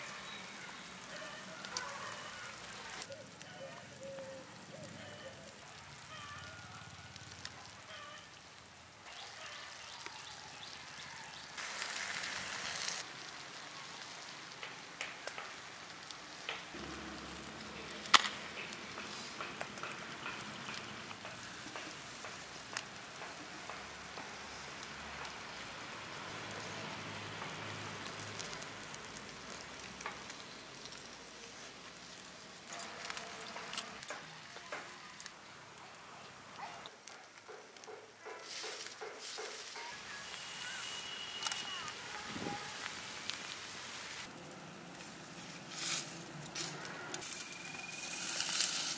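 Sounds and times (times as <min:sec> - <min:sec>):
chicken sizzling in pan: 0:00.0 - 0:37.4, 0:38.4 - 0:48.9
sharp clicks and pops: 0:17.9 - 0:24.4.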